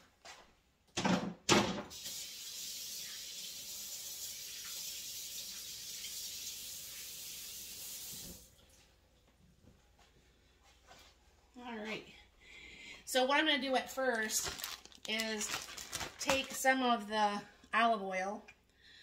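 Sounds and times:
kitchen faucet running: 1.9s - 8.6s.

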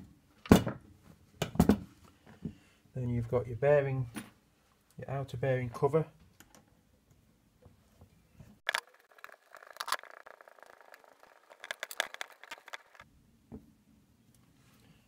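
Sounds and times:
small metallic clicks and scraping: 8.6s - 13.0s.

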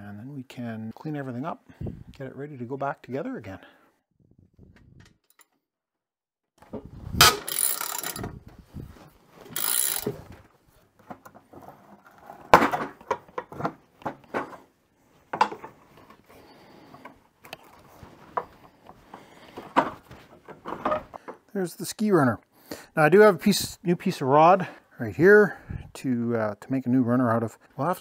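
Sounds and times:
socket ratchet clicking: 7.2s - 8.3s, 9.6s - 10.2s
sharp metal clicks and knocks: 7.2s - 8.4s, 9.5s - 10.2s.

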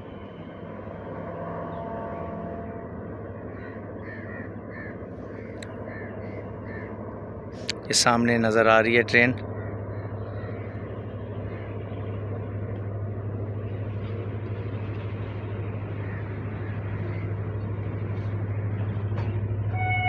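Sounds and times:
diesel locomotive engine drone: 0.0s - 20.0s
train wheels rumbling on track: 10.0s - 20.0s.

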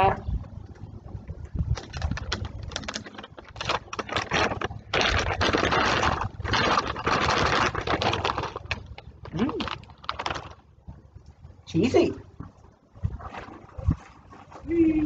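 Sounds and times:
plastic bag crinkling: 1.8s - 10.7s.

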